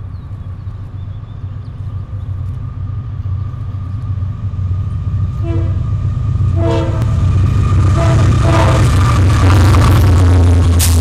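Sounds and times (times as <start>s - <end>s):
diesel locomotive rumble: 0.0s - 11.0s
train air horn blasts: 5.4s - 5.9s, 6.6s - 7.2s, 7.9s - 9.0s.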